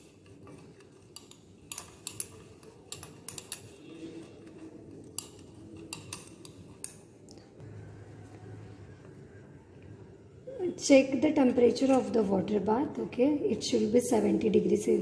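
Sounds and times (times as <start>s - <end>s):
low steady hum: 1.2s - 15.0s.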